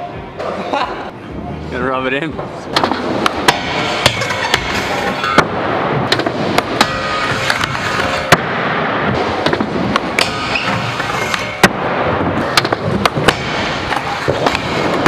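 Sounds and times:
skateboard grinding on metal rail: 3.6s - 5.4s, 6.6s - 8.3s, 9.2s - 11.6s.

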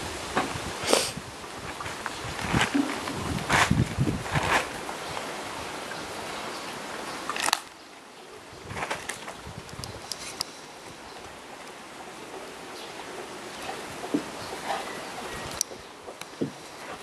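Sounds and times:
loud rustle: 0.0s - 5.7s, 8.6s - 11.4s
wind noise on microphone: 0.0s - 6.3s, 8.4s - 11.4s.

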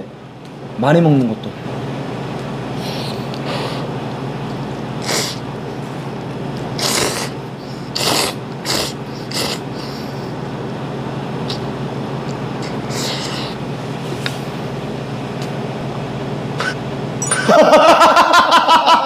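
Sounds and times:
steady low hum: 0.0s - 19.0s
man slurping noodles: 6.8s - 10.1s.

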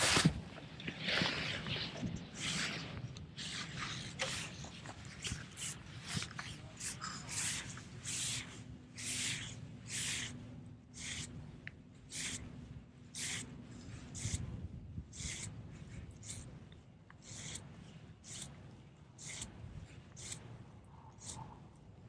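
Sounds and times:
faint low hum: 0.0s - 22.0s
spinning reel swish: 2.3s - 11.4s, 12.1s - 14.6s, 16.2s - 16.6s, 17.2s - 18.6s, 19.2s - 19.6s, 20.2s - 20.6s, 21.2s - 21.5s.

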